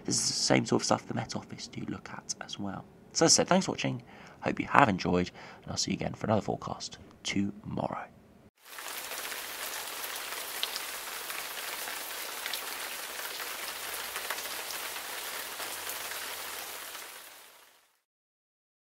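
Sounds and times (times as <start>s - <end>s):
rain falling: 8.6s - 18.0s.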